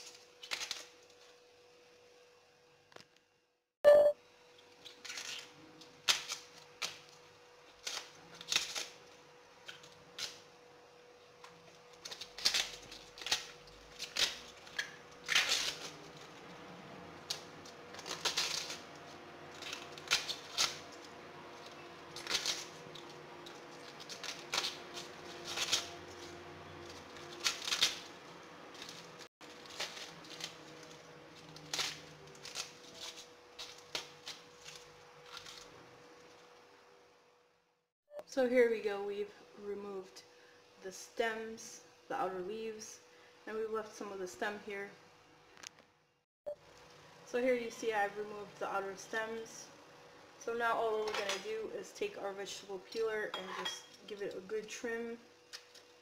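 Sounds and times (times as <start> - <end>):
artichoke leaves snapping: 0.0 - 0.9, 4.8 - 9.0, 11.4 - 16.4, 17.2 - 35.8.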